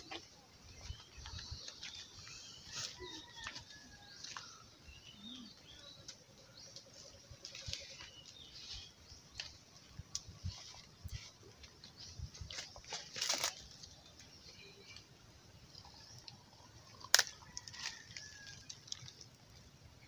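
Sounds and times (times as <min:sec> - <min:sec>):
rustling of dry leaf litter: 0:06.9 - 0:15.1, 0:17.0 - 0:19.7.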